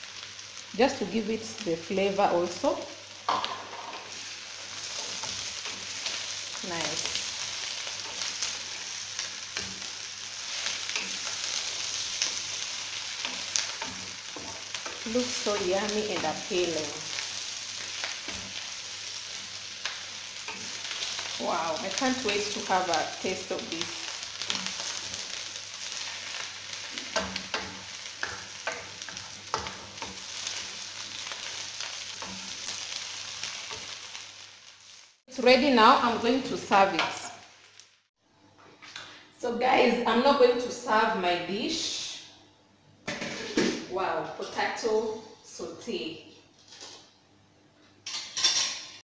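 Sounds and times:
potatoes sizzling in oil: 0.0s - 38.1s
wooden spoon scraping a wok: 3.6s - 35.1s, 43.1s - 44.9s.

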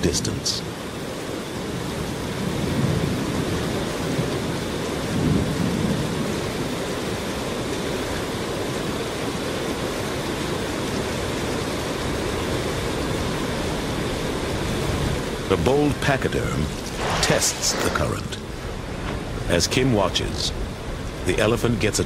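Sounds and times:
flooded river roaring: 6.0s - 22.0s.

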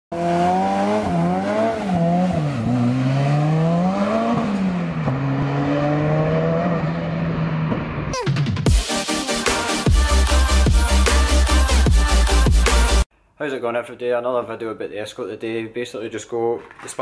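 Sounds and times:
race car engine revving: 0.1s - 8.1s.

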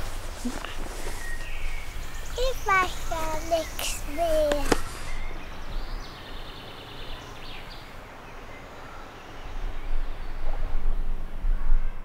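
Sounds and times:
high bird calls: 0.0s - 9.4s
steady outdoor rush: 0.0s - 12.0s.

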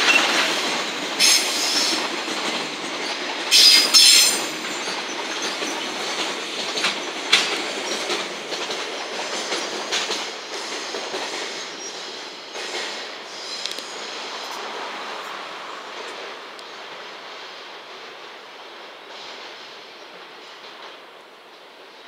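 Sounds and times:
train wheels clattering: 0.0s - 14.5s.

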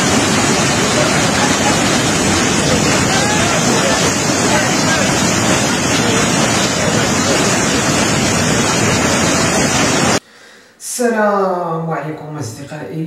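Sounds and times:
floodwater rushing over street: 0.0s - 10.2s.

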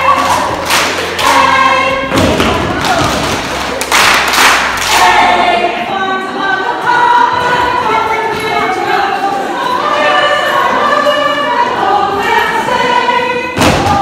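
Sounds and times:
group singing dance song: 0.0s - 14.0s
hand claps: 0.2s - 1.5s, 2.8s - 5.1s.

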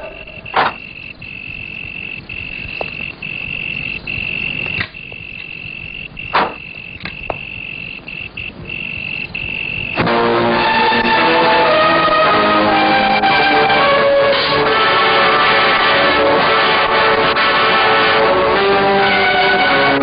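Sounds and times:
crickets trilling: 0.0s - 11.7s
film music: 0.0s - 20.0s
sharp clicks: 0.4s - 10.1s.

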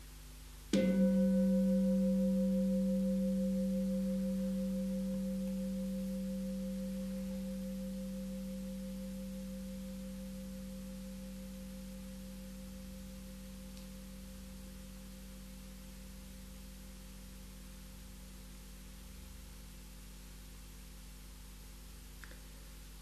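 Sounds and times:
singing bowl struck and ringing: 0.8s - 16.6s.

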